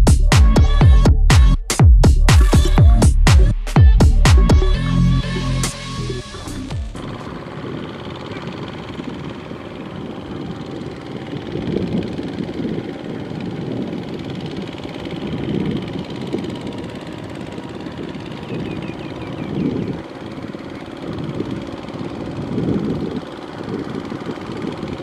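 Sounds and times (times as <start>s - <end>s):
music: 0.0s - 7.1s
diesel tractor engine rumbling: 4.2s - 25.0s.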